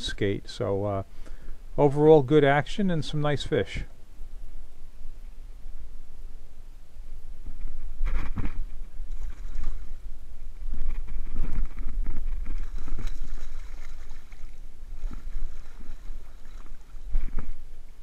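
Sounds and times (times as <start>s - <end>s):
fish thrashing and splashing: 9.1s - 10.0s, 10.7s - 17.6s.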